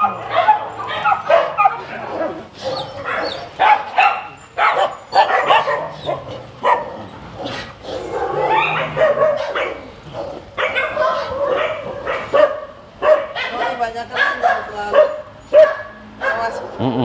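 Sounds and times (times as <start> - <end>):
many dogs barking: 0.0 - 16.8.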